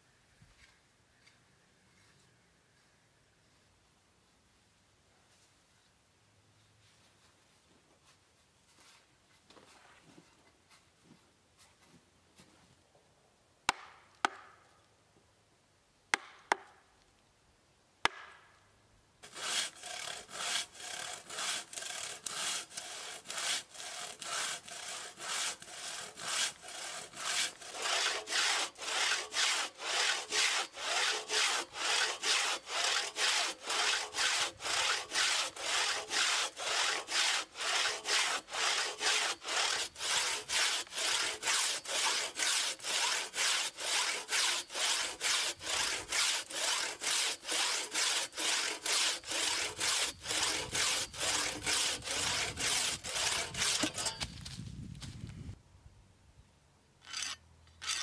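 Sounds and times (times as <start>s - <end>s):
hand saw cutting log: 19.2s - 54.3s, 57.0s - 58.0s.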